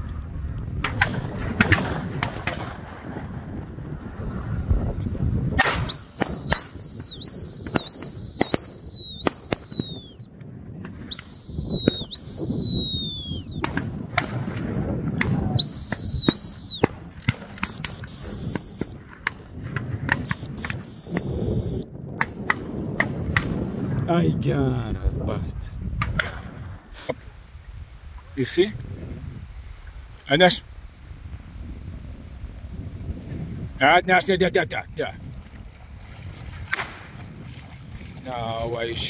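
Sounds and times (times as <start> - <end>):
sharp clicks: 5.6 - 10.0, 15.9 - 19.0
dog-training whistle blasts: 5.8 - 10.2, 11.1 - 13.6, 15.6 - 16.9, 17.6 - 19.0, 20.2 - 21.9.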